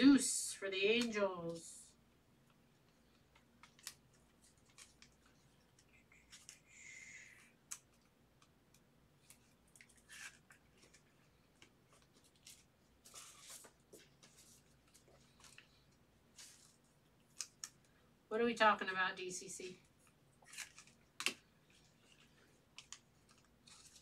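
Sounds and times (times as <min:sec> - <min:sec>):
plastic card sleeves rustling: 0:02.8 - 0:06.7, 0:09.2 - 0:17.9, 0:20.0 - 0:24.0
faint clicks of cards: 0:19.9 - 0:24.0.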